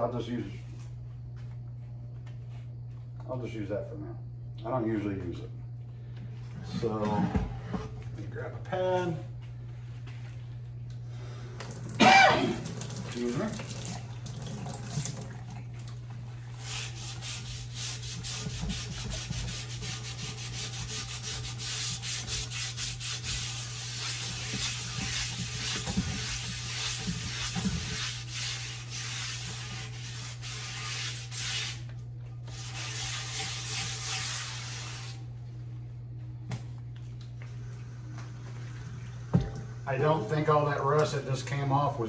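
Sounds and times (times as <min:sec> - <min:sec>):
scouring pad scrubbing cast iron: 0:16.5 - 0:31.8, 0:32.5 - 0:35.1.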